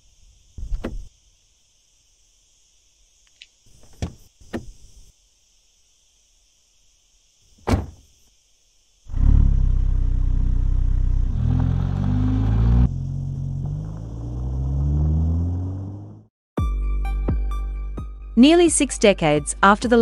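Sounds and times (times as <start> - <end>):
car door knocks and thunk: 0.6 - 1.1, 3.8 - 4.8, 7.6 - 8.0
car engine starting and running: 9.1 - 16.3.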